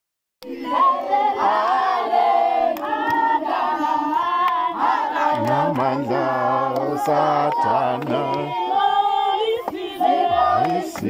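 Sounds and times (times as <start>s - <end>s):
choir singing: 0.4s - 11.0s
deeper voice singing: 5.2s - 8.9s, 9.6s - 11.0s.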